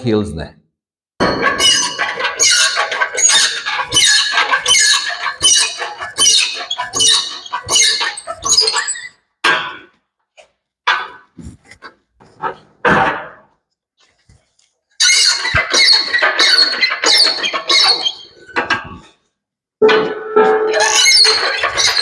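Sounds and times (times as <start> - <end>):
workshop crane squeaking: 1.2 - 9.3, 15.0 - 18.8, 19.8 - 22.0.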